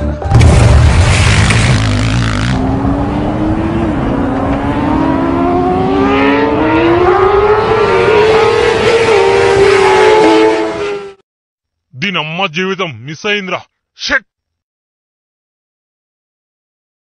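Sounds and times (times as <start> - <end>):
motorcycle engine accelerating: 1.1 - 11.2.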